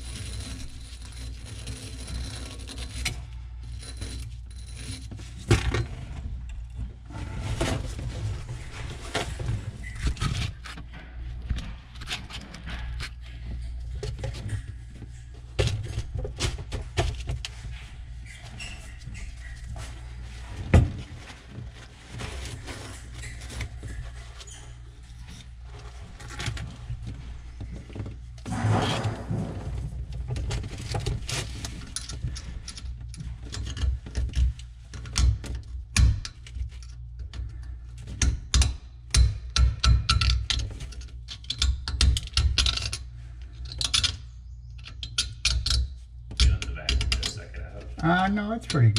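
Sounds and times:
scraping on metal: 0:00.0 - 0:05.4, 0:28.4 - 0:32.7.

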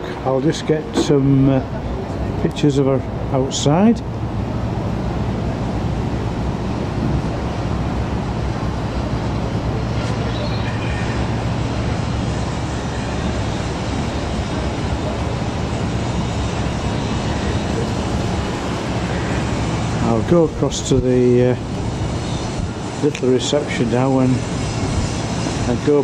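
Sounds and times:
wind on microphone: 0:11.1 - 0:26.0.

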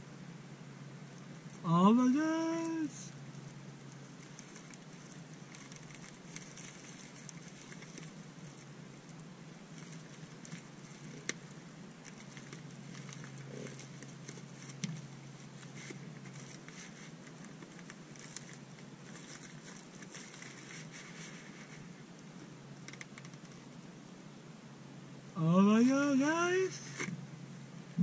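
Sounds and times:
packaging crinkling: 0:04.2 - 0:08.7, 0:15.6 - 0:21.8.

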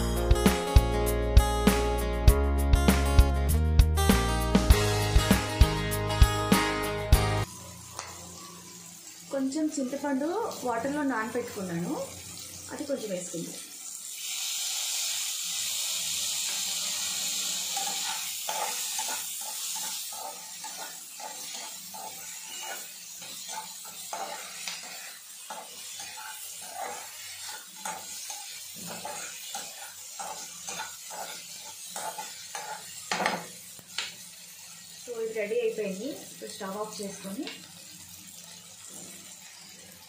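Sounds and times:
liquid sizzling in hot pan: 0:04.2 - 0:40.0
steel spatula scraping pan: 0:16.4 - 0:33.5.

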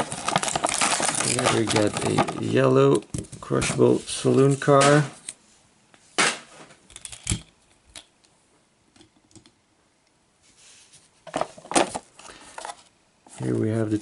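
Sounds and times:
toy vehicles clattering: 0:00.0 - 0:02.6.

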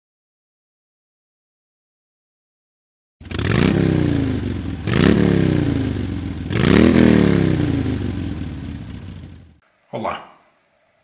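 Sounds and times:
motorcycle engine revving: 0:03.2 - 0:09.6.

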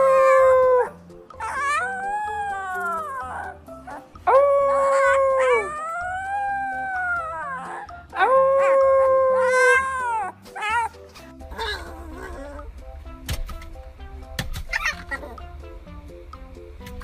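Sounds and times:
puppy howling: 0:00.0 - 0:12.7, 0:14.7 - 0:15.4
faint background music: 0:00.0 - 0:17.0.

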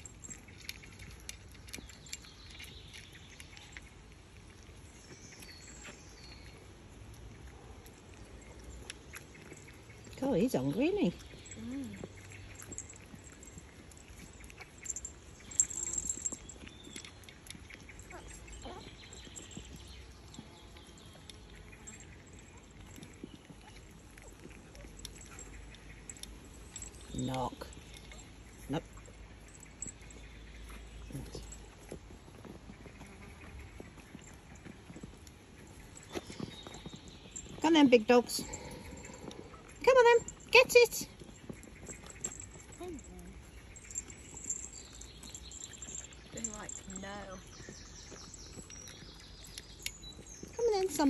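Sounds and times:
puppies chewing and licking: 0:00.0 - 0:51.0.

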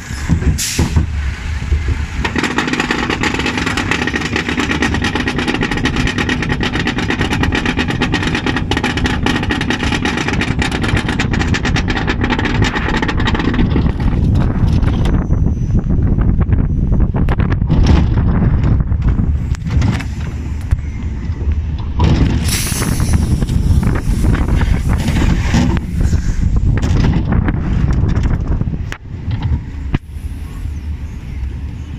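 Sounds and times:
rapid clicking: 0:02.2 - 0:14.7.

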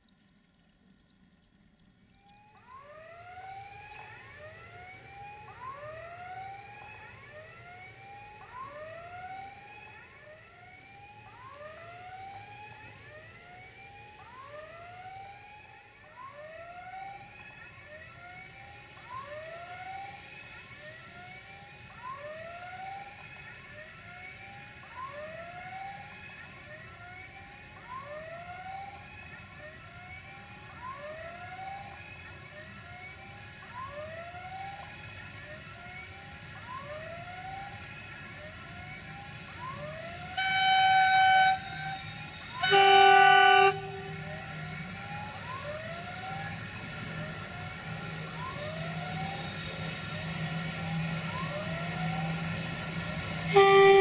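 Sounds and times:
siren-like warbling tones: 0:40.4 - 0:45.2.

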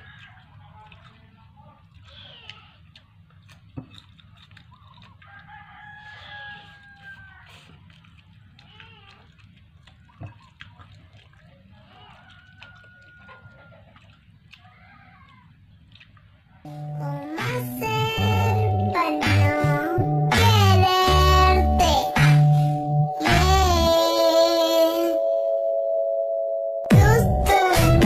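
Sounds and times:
rooster crowing faintly: 0:05.2 - 0:07.8, 0:11.8 - 0:14.0
low hum: 0:16.7 - 0:28.0.

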